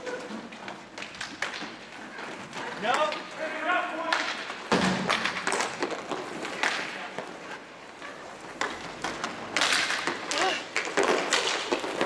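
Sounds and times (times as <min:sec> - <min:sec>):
skate wheels scraping floor: 0:00.0 - 0:12.0
hockey stick clacking puck: 0:00.9 - 0:03.3, 0:04.0 - 0:07.4, 0:08.6 - 0:12.0.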